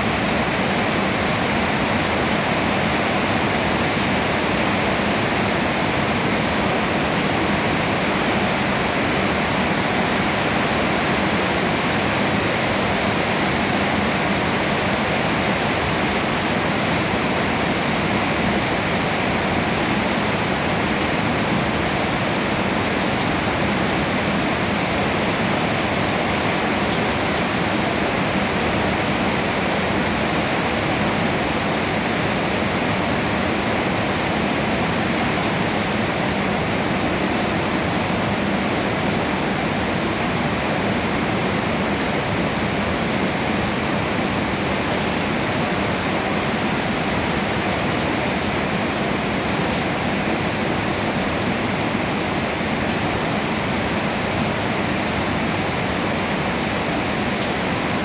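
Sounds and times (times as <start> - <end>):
rain falling on trees: 0.0 - 58.0.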